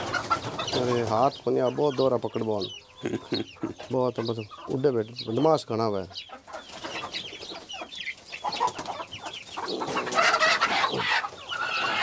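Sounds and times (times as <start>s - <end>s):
chicken squawking: 0.0s - 5.1s, 6.1s - 12.0s
chickens clucking: 0.0s - 12.0s.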